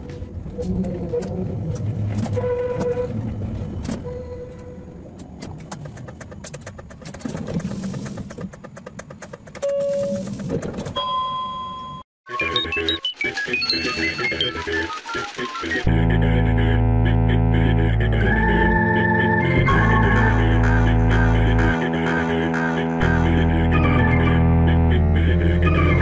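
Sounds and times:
tram rumbling on rails: 0:00.0 - 0:11.0
background music: 0:12.3 - 0:26.0.

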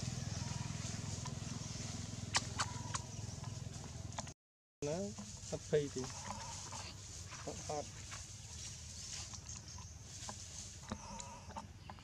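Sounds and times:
low outdoor background: 0:00.0 - 0:12.0
short animal calls: 0:02.3 - 0:03.1, 0:06.0 - 0:06.9.

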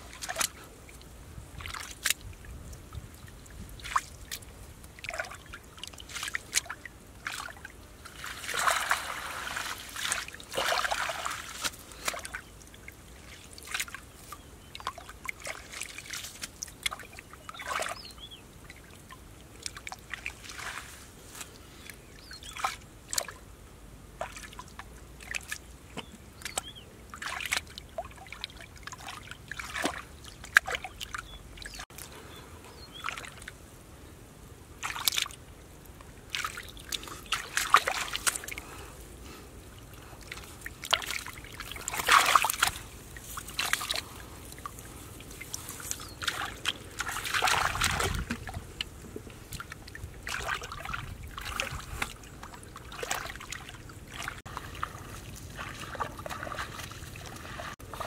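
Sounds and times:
hands splashing in shallow water: 0:03.8 - 0:12.5, 0:36.3 - 0:38.6, 0:40.2 - 0:58.0.

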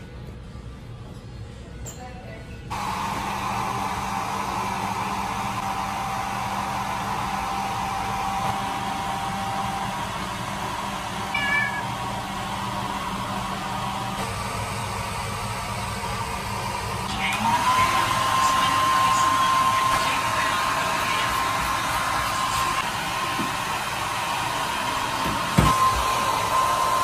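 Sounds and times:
cat meowing: 0:11.3 - 0:11.9.

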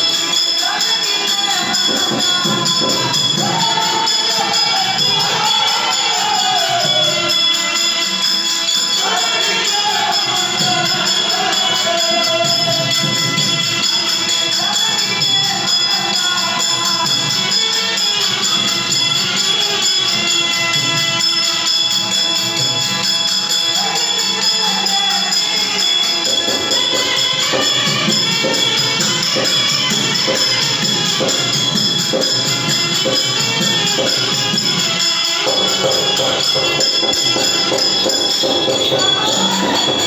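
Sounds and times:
constant jingling: 0:00.0 - 0:40.0
steady held notes: 0:16.4 - 0:40.0
drum beat: 0:26.1 - 0:40.0.

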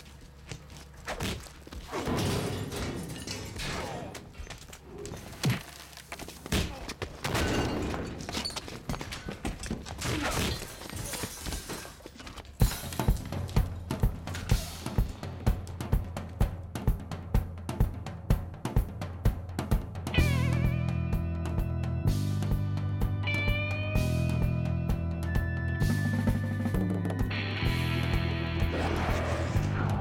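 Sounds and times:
film sound effects and music: 0:11.7 - 0:30.0
driving drum-kit beat: 0:12.6 - 0:28.5.

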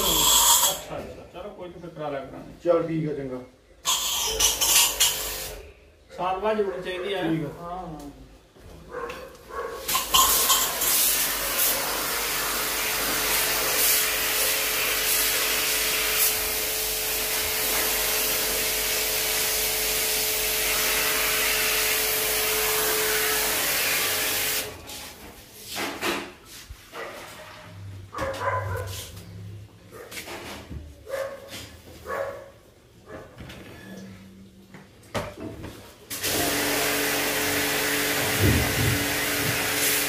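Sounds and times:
water jet spraying hiss: 0:09.9 - 0:16.5, 0:36.2 - 0:40.0.

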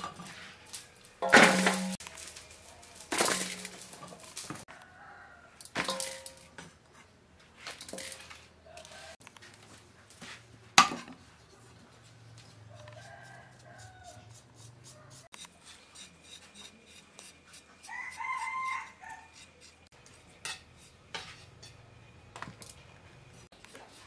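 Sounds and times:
peppers clattering into metal bowl: 0:00.0 - 0:04.6, 0:05.6 - 0:06.6, 0:07.7 - 0:08.4.

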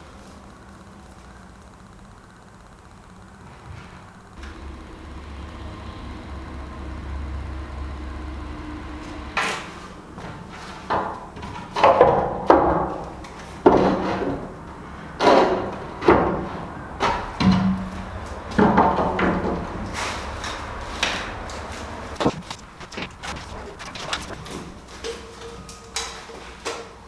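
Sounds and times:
steady low hum: 0:00.0 - 0:10.4, 0:19.5 - 0:25.6.

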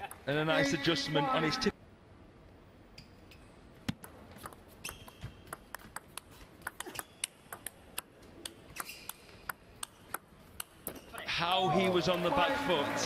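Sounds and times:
ping pong ball clicking off rackets: 0:03.9 - 0:11.3
shoes squeaking on floor: 0:04.7 - 0:05.5, 0:08.7 - 0:09.4.

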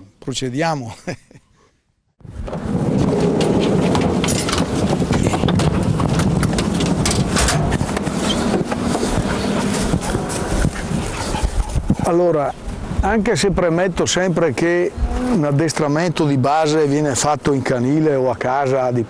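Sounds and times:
dogs' paws clattering in crates: 0:02.7 - 0:12.0.

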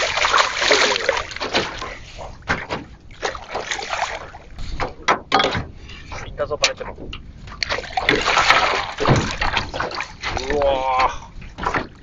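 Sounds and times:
fish splashing in water: 0:00.0 - 0:04.5, 0:07.5 - 0:10.8.

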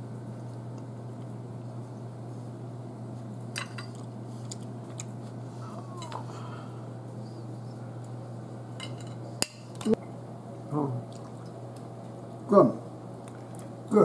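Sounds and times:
steady low hum: 0:00.0 - 0:14.0
knife and fork clinking on plate: 0:08.8 - 0:10.0.

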